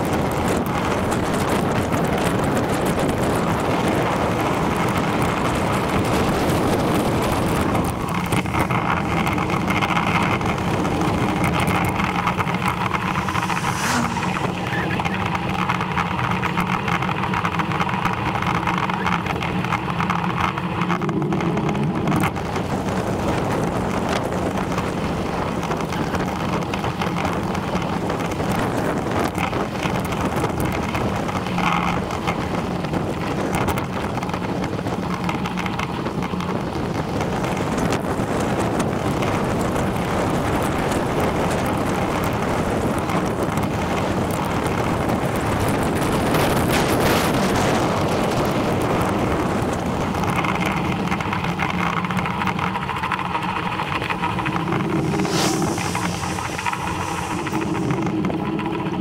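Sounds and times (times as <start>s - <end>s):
bicycle tyres on tarmac: 0.0s - 59.0s
wind on microphone: 0.0s - 59.0s
steady hum with low tones: 11.8s - 15.6s, 53.5s - 59.0s.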